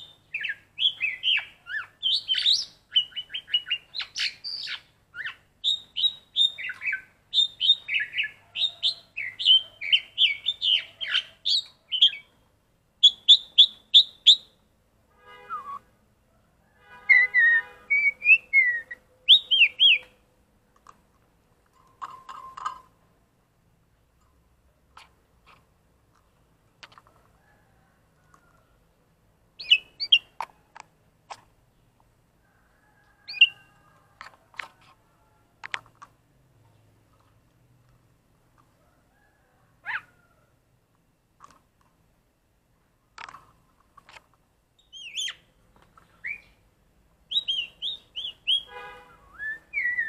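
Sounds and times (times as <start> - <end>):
bird whistled calls: 0.0 - 12.3, 13.0 - 14.6, 15.4 - 15.9, 17.1 - 20.1, 29.6 - 30.3, 44.8 - 45.4, 46.2 - 46.6, 47.3 - 50.0
starling singing: 0.0 - 12.4, 13.0 - 14.6, 17.0 - 20.2, 29.6 - 30.4, 33.2 - 33.7, 44.8 - 46.6, 47.3 - 50.0.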